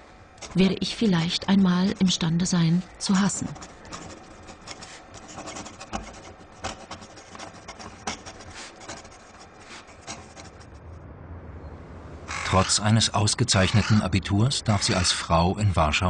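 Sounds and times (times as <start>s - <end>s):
pen scratching on paper: 0.4s - 10.8s.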